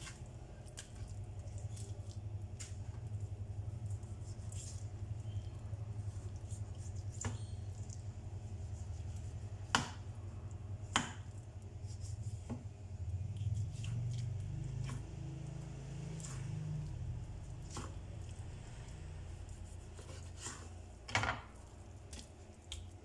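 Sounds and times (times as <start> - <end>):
knife slicing raw meat: 6.0 - 10.1.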